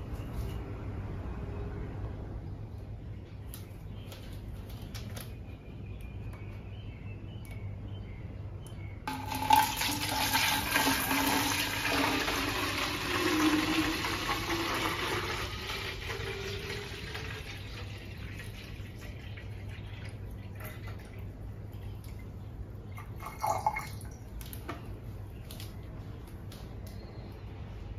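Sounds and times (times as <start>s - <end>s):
water pouring into plastic bottle: 9.1s - 21.3s, 23.0s - 24.3s.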